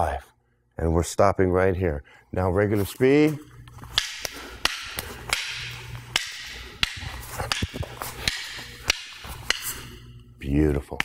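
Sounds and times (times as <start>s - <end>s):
fighting sticks clacking: 3.5s - 10.2s
sticks swishing through air: 3.9s - 10.0s.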